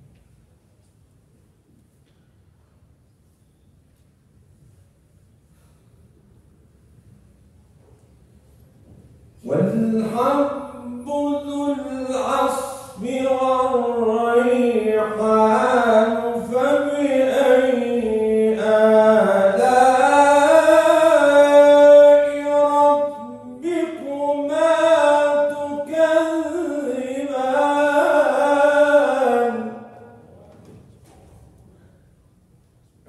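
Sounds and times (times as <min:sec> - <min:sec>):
man chanting melodically: 0:09.4 - 0:30.6.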